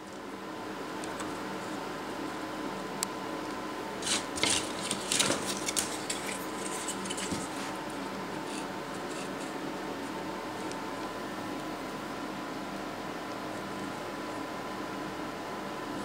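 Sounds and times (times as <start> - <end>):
steady background hum: 0.0 - 16.0
wood parts scraping and knocking: 4.0 - 9.6.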